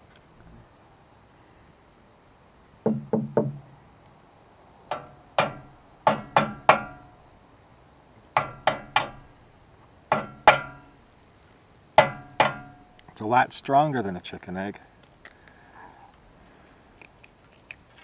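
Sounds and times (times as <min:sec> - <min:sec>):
egg knocking on metal grate: 0:02.9 - 0:03.6, 0:04.9 - 0:07.1, 0:08.4 - 0:09.2, 0:10.1 - 0:10.9, 0:12.0 - 0:12.9.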